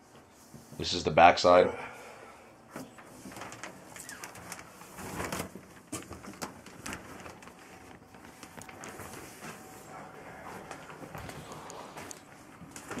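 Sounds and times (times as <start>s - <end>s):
plastic sheeting crinkling: 2.8s - 13.0s.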